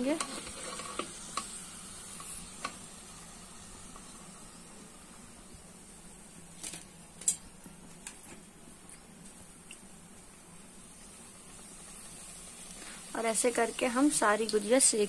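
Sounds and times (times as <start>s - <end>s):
hot oil sizzling: 0.0s - 15.0s.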